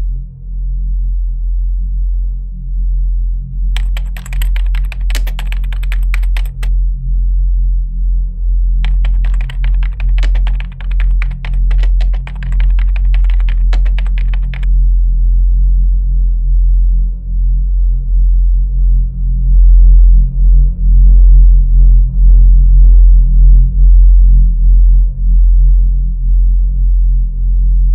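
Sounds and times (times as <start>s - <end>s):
rapid keyboard typing: 3.8s - 6.7s, 8.8s - 14.7s
low droning music: 6.7s - 8.8s, 14.7s - 27.9s.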